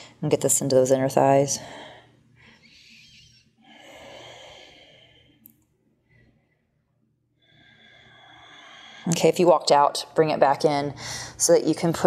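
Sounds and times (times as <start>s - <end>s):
woman breathing: 1.5s - 9.3s, 11.0s - 11.4s.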